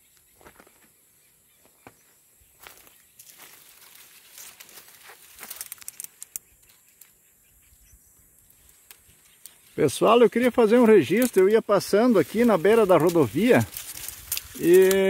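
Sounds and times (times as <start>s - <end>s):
dry leaves rustling and crackling: 2.6s - 7.1s, 8.4s - 15.0s.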